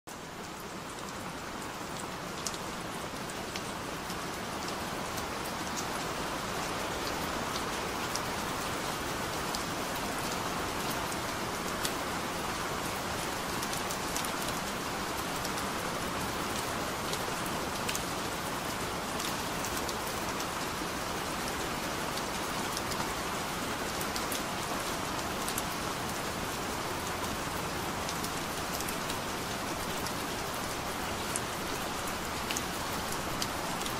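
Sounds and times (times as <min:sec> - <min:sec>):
steady rain falling: 0:00.1 - 0:33.9
rain drop ticks: 0:01.9 - 0:02.6, 0:32.5 - 0:33.9.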